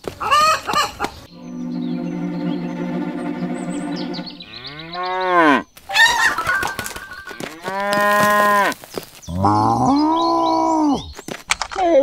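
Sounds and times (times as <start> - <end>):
cows mooing: 4.5 - 5.6, 7.4 - 8.7.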